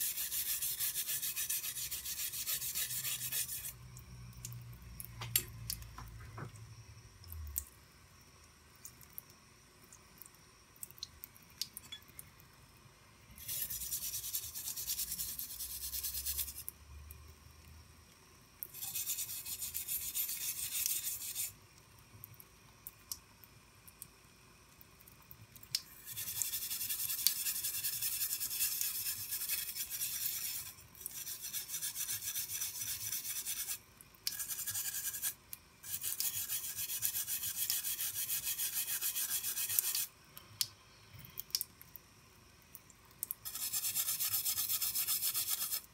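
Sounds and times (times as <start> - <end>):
knife blade scraping: 0.1 - 3.7.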